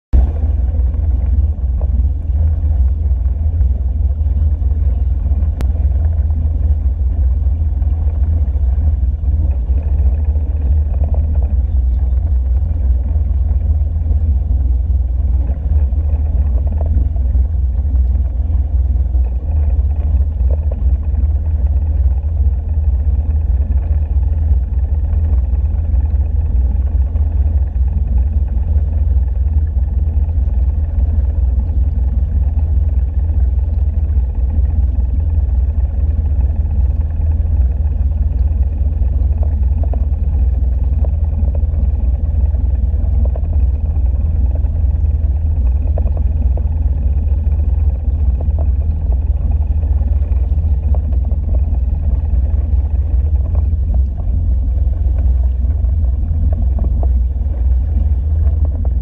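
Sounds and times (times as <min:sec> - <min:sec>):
boat engine rumbling: 0:00.0 - 0:59.0
water wash: 0:00.2 - 0:59.0.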